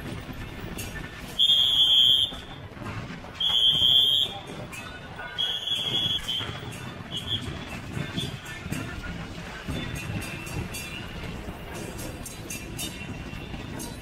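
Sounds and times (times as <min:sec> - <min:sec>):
low din of procession: 0:00.0 - 0:14.0
shrill whistle blasts: 0:01.3 - 0:02.6, 0:03.4 - 0:08.5.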